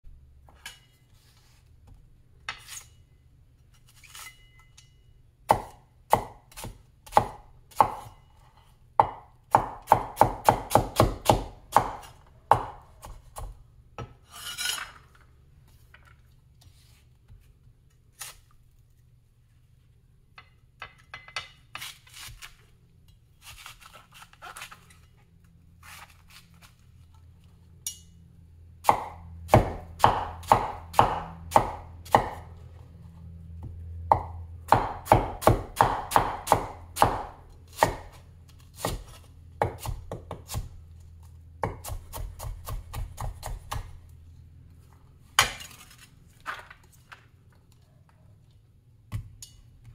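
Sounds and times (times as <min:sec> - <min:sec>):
cleaver chopping on wooden board: 0:09.0 - 0:13.6, 0:28.9 - 0:32.5, 0:34.1 - 0:38.2
blade scraping across board: 0:14.2 - 0:15.0.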